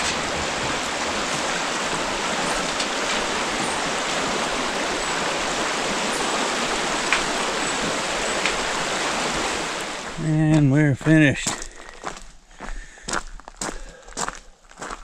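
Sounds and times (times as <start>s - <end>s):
river rushing over rocks: 0.0s - 10.4s.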